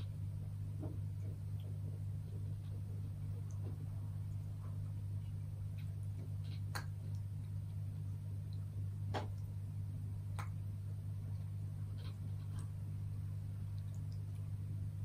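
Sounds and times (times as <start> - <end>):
low hum: 0.0 - 15.0.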